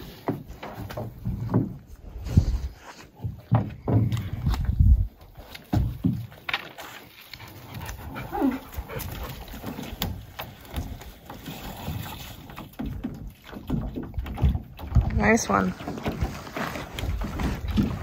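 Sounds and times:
paddle knocks and splashes: 0:00.0 - 0:18.0
dog whining: 0:08.1 - 0:08.8.

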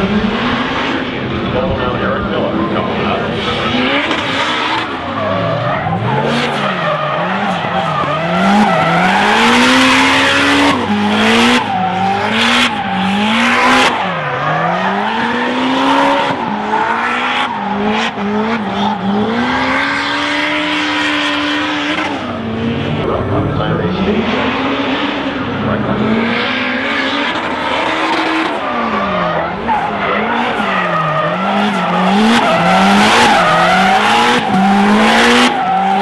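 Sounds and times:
car engine revving: 0:00.0 - 0:36.0.

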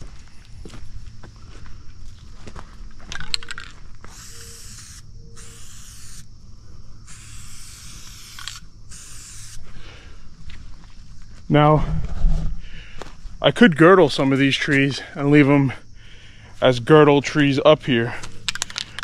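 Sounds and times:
spray can rattle: 0:04.1 - 0:06.2, 0:07.1 - 0:09.6
spray paint can hissing: 0:04.1 - 0:06.3, 0:07.0 - 0:09.6.

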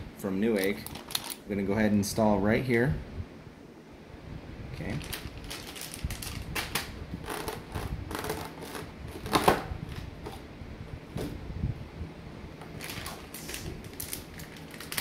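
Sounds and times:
plastic packaging rustling: 0:00.4 - 0:01.5, 0:04.8 - 0:10.4, 0:12.6 - 0:15.0.

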